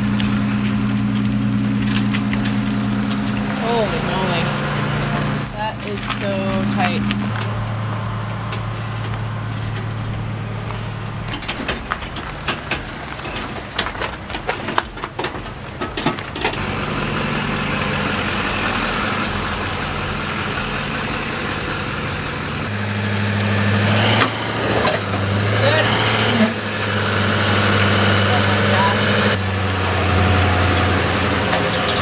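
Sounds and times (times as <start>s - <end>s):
truck engine running: 0.0s - 32.0s
clicks and knocks: 8.3s - 16.6s.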